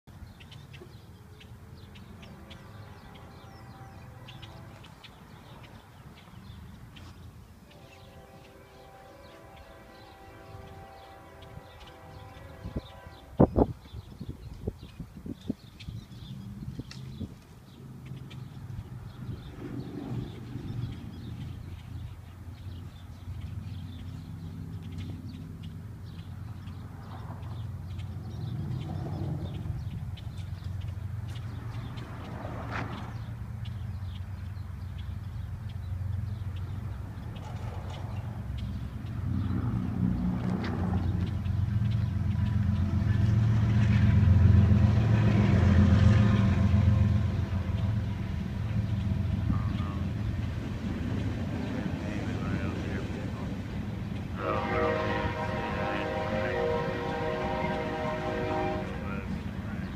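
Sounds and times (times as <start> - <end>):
small birds chirping: 0.1 - 54.6, 56.0 - 59.9
steady low rumble: 1.0 - 59.9
low engine hum: 13.7 - 59.9.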